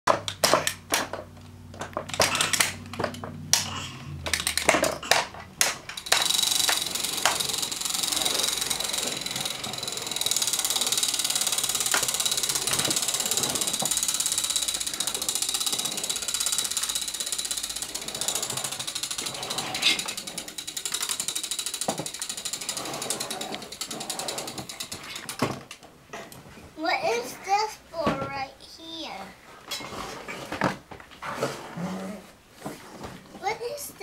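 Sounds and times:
sharp plastic knocks: 0:00.1 - 0:06.3
toy drill ratcheting whirr: 0:02.1 - 0:03.6, 0:04.2 - 0:25.5.

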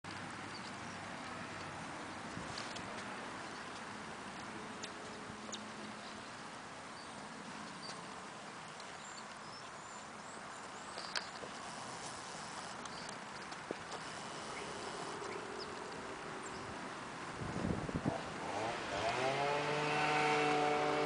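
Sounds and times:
footsteps and handling clicks: 0:00.1 - 0:05.9, 0:10.9 - 0:16.0
steady outdoor hiss: 0:00.1 - 0:21.0.

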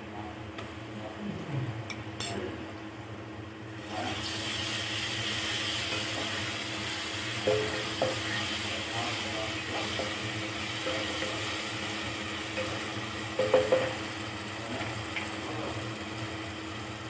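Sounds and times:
onions sizzling in hot oil: 0:03.7 - 0:17.0.

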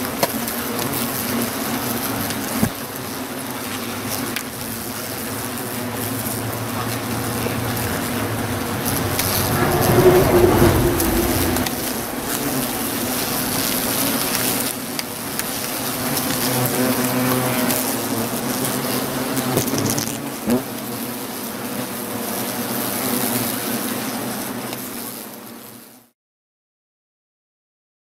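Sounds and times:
hornets buzzing: 0:00.6 - 0:19.9.

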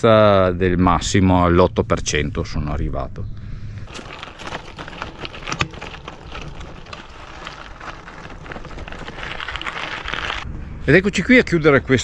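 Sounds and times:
bike tyres rolling on gravel: 0:03.9 - 0:10.5.

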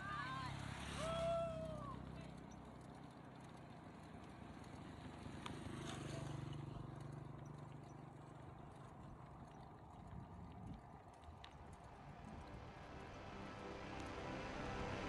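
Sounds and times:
bicycle rolling and rattling: 0:00.0 - 0:15.0
low hum: 0:06.7 - 0:15.0.

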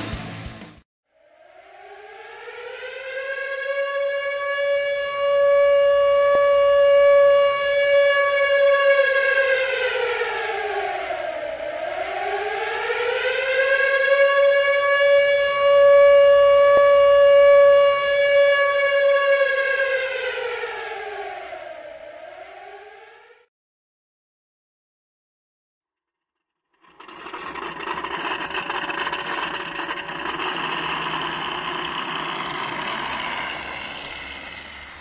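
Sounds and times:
air-raid siren wailing: 0:01.2 - 0:23.5, 0:26.7 - 0:35.0.

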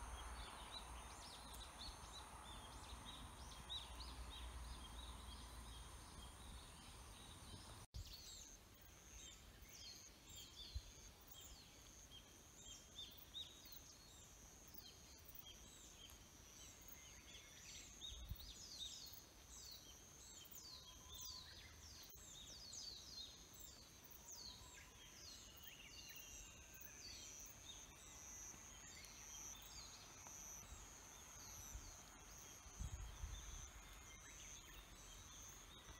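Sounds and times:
insects buzzing: 0:25.5 - 0:35.9.

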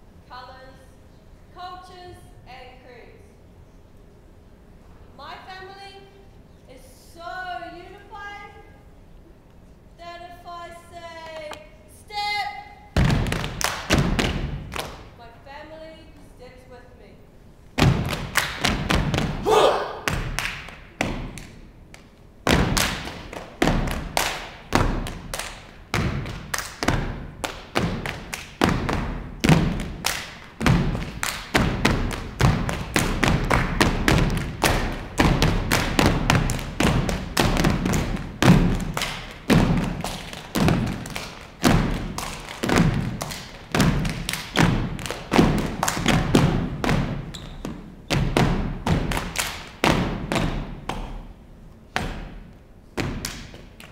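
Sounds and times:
stomping on wooden stage: 0:13.0 - 0:14.8, 0:17.8 - 0:21.4, 0:22.4 - 0:51.2
body percussion: 0:13.0 - 0:15.1, 0:17.8 - 0:53.9
people clapping in unison: 0:13.2 - 0:14.0, 0:18.0 - 0:18.8, 0:20.0 - 0:22.1, 0:22.7 - 0:25.6, 0:26.3 - 0:28.6, 0:29.7 - 0:46.3, 0:49.0 - 0:49.8.

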